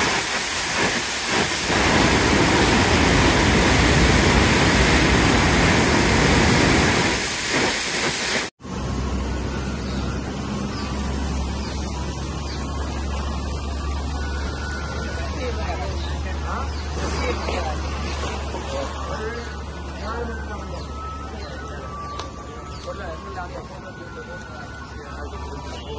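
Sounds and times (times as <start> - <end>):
floodwater rushing: 0.0 - 8.5.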